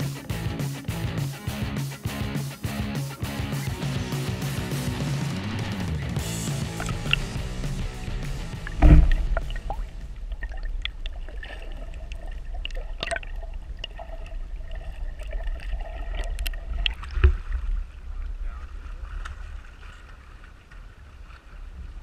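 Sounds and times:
muffled underwater rumble: 0:05.6 - 0:22.0
sharp clicks underwater: 0:06.5 - 0:17.6
loud knock: 0:08.7 - 0:09.5.

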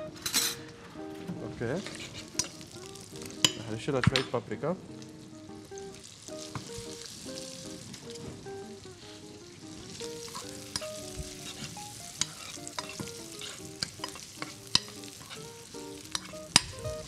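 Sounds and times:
meat sizzling in oil: 0:01.5 - 0:17.0
metal spoon scraping a pan: 0:01.8 - 0:03.7, 0:10.0 - 0:17.0.

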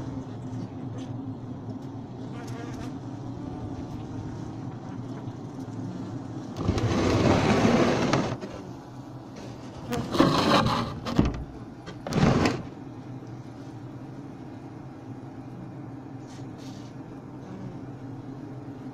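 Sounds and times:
bees humming: 0:02.2 - 0:06.8
camera rubbing against hive: 0:09.5 - 0:11.2.

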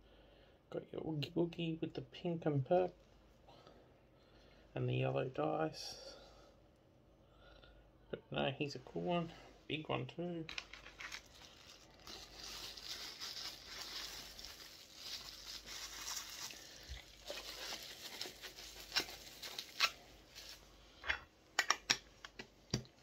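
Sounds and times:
plastic wrapper bag crinkling: 0:10.5 - 0:20.7
sharp clicks and knocks: 0:21.1 - 0:23.0.

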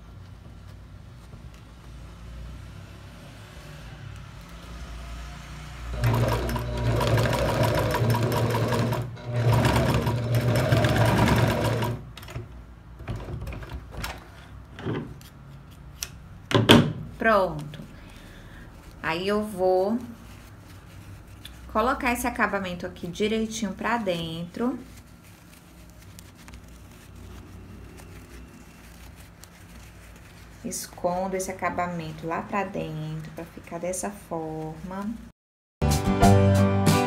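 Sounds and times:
clicks and knocks handling fabric: 0:00.0 - 0:02.2, 0:09.6 - 0:32.2
sewing machine stitching: 0:05.9 - 0:12.4.

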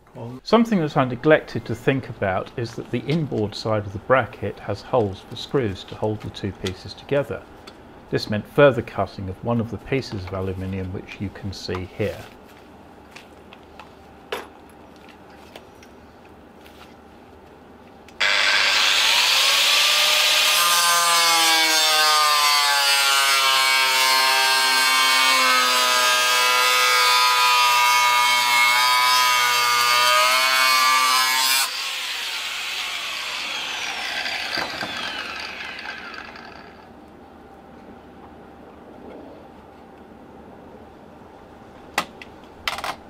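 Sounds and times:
grinder winding down whine: 0:18.2 - 0:20.5, 0:31.6 - 0:36.9
angle grinder cutting metal: 0:18.2 - 0:36.9.

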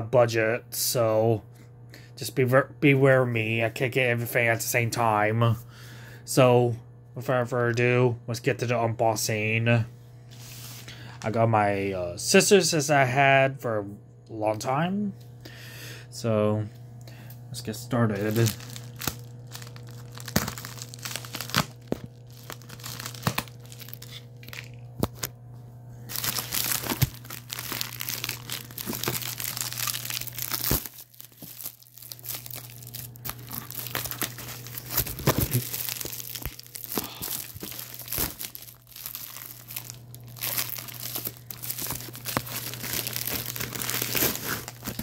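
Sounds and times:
steady low hum: 0:00.0 - 0:45.0
plastic and bubble wrap crinkling: 0:18.0 - 0:25.3, 0:26.1 - 0:45.0.

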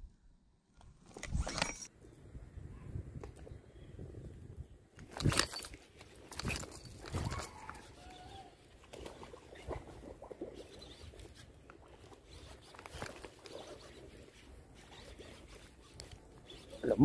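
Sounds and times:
fishing reel ticks and rustles: 0:05.0 - 0:17.0.

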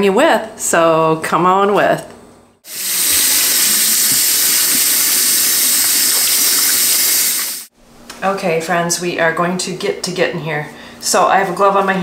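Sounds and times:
faucet water splashing: 0:02.7 - 0:07.7.

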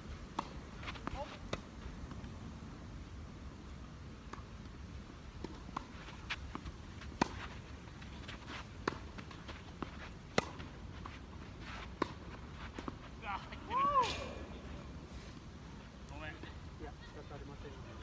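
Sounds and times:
racket hitting tennis ball: 0:05.4 - 0:13.1.

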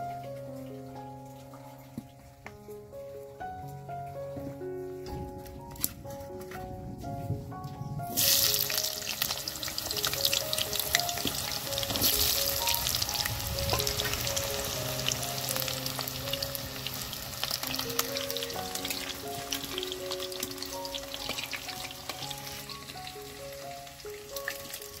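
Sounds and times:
melody of held notes: 0:00.0 - 0:25.0
potatoes sizzling in hot oil: 0:08.1 - 0:25.0.

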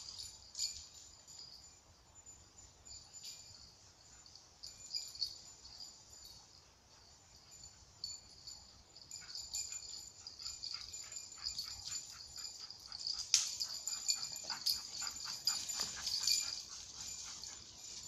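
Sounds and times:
dog barking and yelping: 0:10.1 - 0:17.9.

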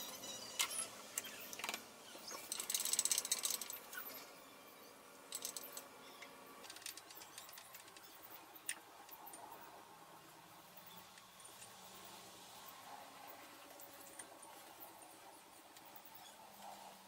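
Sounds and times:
light metallic clicks and rattles: 0:00.6 - 0:04.2, 0:05.3 - 0:09.5.

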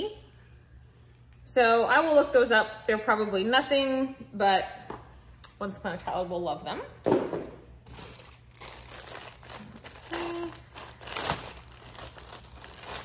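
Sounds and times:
packaging rustling and crinkling: 0:07.8 - 0:13.0.

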